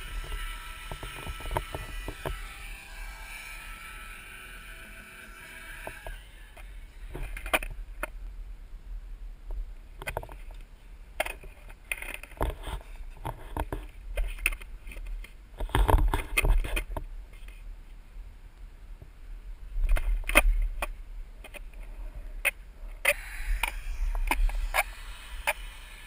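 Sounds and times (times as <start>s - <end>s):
low steady rumble: 0.0s - 13.2s.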